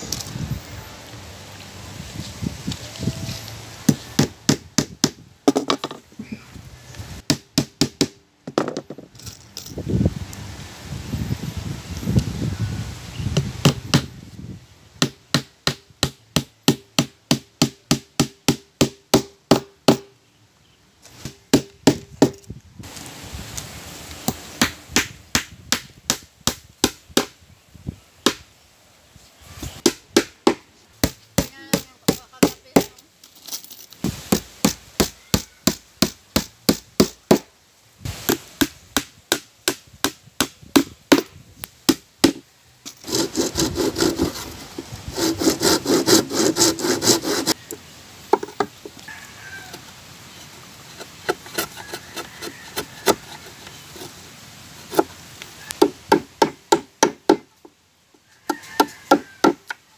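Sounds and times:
handsaw cutting wood: 43.0s - 47.6s, 50.9s - 54.2s.

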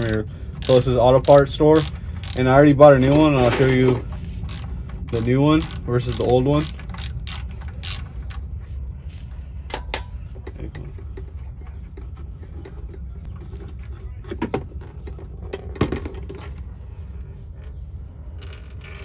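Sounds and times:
ratchet metallic clicks and knocks: 0.0s - 8.6s, 9.7s - 11.4s
steady low hum: 0.0s - 19.0s.

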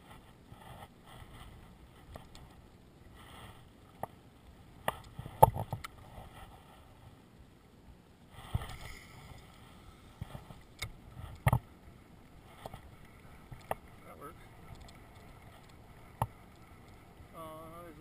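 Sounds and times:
wind hiss: 8.2s - 18.0s.

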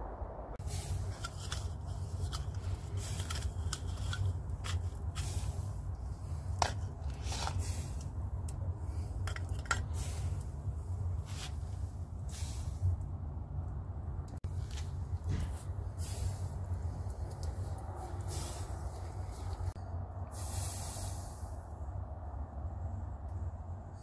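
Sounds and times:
steady low rumble: 0.0s - 24.0s
things handled on bamboo mat: 0.6s - 12.8s, 14.4s - 19.8s.

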